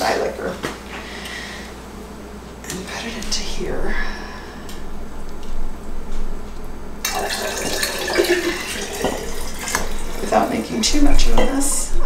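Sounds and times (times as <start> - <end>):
liquid pouring into glass jar: 7.0 - 10.3.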